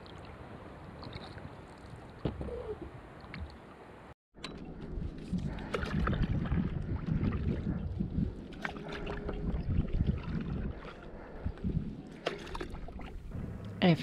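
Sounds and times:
paddle splashing in water: 0:05.2 - 0:11.2, 0:12.0 - 0:13.3.

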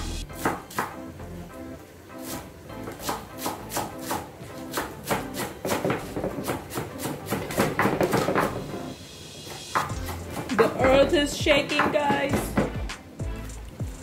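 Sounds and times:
background music: 0:00.0 - 0:14.0
knife chopping on wooden board: 0:00.4 - 0:01.0, 0:02.2 - 0:08.6.

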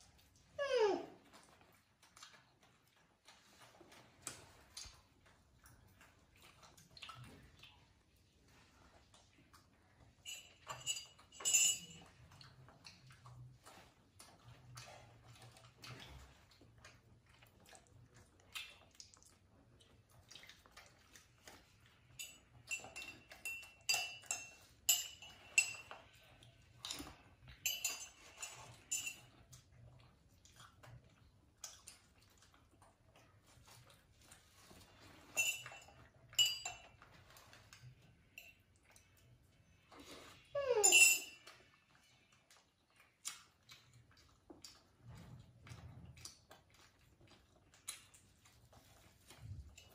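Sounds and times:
metal spoon clinking on mug: 0:10.2 - 0:12.1, 0:22.2 - 0:26.0, 0:27.6 - 0:29.3, 0:35.4 - 0:37.0, 0:40.8 - 0:41.4
clinks on steel bowl: 0:10.2 - 0:12.2, 0:22.1 - 0:26.2, 0:26.8 - 0:29.3, 0:35.3 - 0:37.2, 0:38.4 - 0:38.6, 0:40.7 - 0:41.5.

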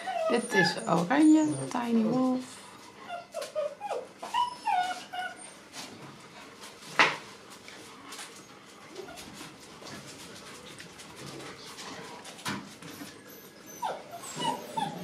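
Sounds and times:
puppy whining and yipping: 0:00.0 - 0:02.1, 0:03.0 - 0:05.7, 0:12.8 - 0:15.0.

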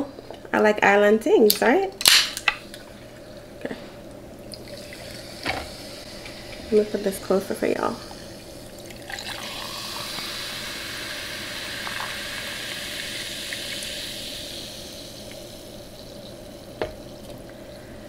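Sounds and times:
sparkling water fizzing: 0:04.4 - 0:18.0.

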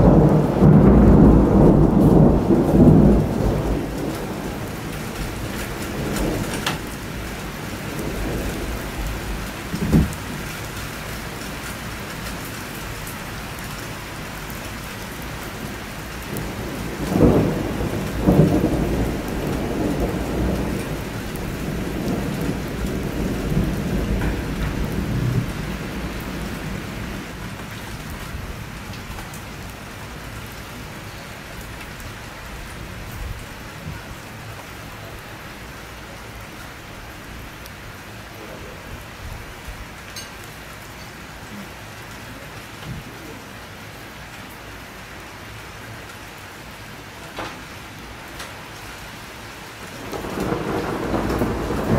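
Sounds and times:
thunder rumbling: 0:00.0 - 0:12.0, 0:15.6 - 0:30.9, 0:49.9 - 0:51.9
steady rain: 0:00.0 - 0:51.9.

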